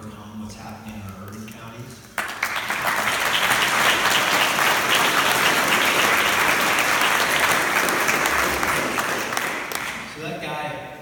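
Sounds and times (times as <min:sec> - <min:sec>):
audience applauding: 0:02.2 - 0:10.2.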